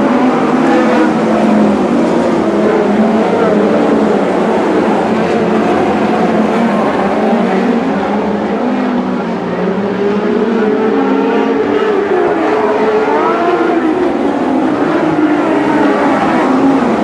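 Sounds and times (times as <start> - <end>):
racing car engines: 0.0 - 17.0.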